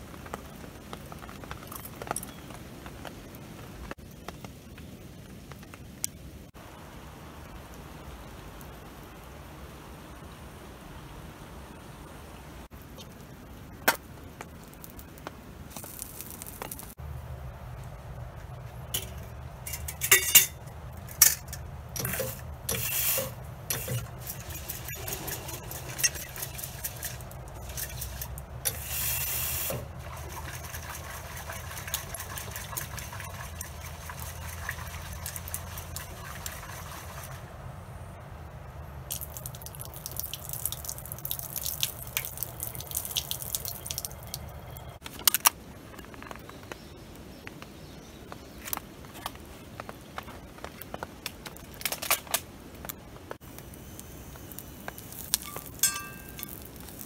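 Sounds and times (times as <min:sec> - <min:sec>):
steady hiss: 0:00.0 - 0:30.0, 0:46.5 - 0:57.0
metal pot clinking: 0:19.0 - 0:28.8, 0:55.2 - 0:57.0
water poured from pot: 0:21.2 - 0:37.4, 0:39.1 - 0:44.4, 0:54.5 - 0:57.0
water splashing in sink: 0:22.0 - 0:37.4.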